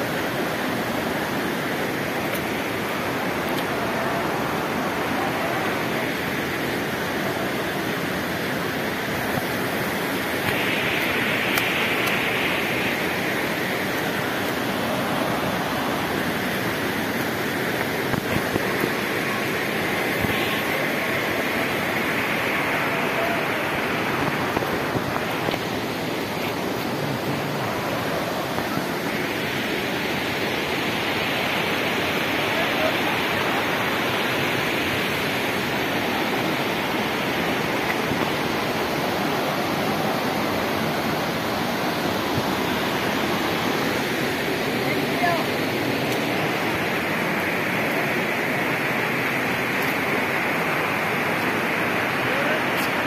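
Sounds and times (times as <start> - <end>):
water rushing and falling: 0.0 - 53.0.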